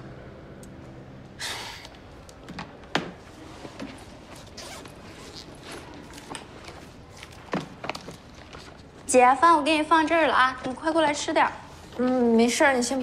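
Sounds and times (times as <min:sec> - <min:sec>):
breathy sigh: 0:01.4 - 0:01.9.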